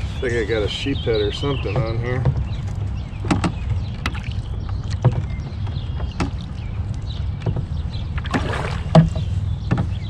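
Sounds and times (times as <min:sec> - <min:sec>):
water against hull: 0:00.0 - 0:10.0
knocks on kayak: 0:07.4 - 0:10.0.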